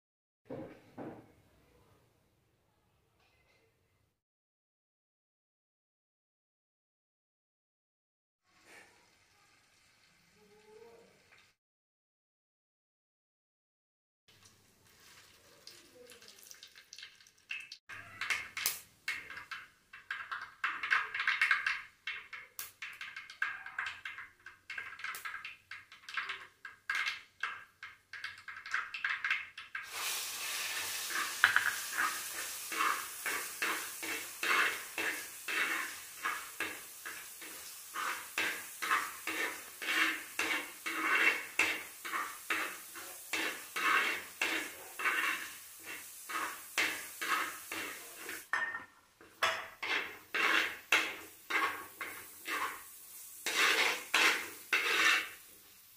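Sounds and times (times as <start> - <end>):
garlic sizzling in oil: 8.5 - 11.6, 14.3 - 55.9
seeds popping in hot oil: 14.3 - 55.9
spoon scraping clay pot: 31.0 - 48.5, 49.5 - 55.4.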